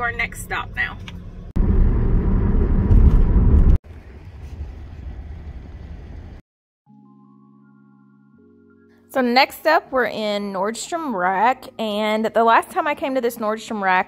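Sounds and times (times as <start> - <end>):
outdoor background noise: 0.0 - 6.4
soft music with held chords: 6.9 - 10.2.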